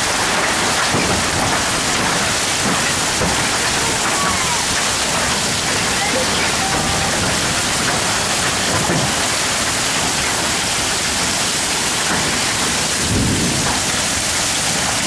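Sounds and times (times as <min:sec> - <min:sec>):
heavy hail and rain: 0:00.0 - 0:15.0
low thunder rumble: 0:12.9 - 0:15.0.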